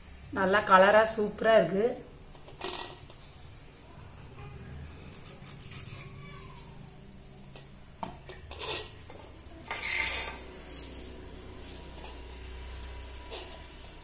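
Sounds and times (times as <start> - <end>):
clinks and scrapes in metal bowl: 8.2 - 11.0.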